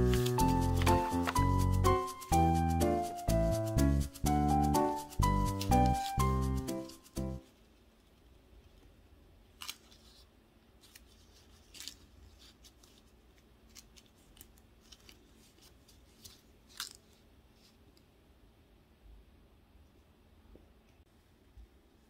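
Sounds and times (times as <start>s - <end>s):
paper crinkling: 0.0s - 3.1s, 4.7s - 7.8s, 9.5s - 17.8s.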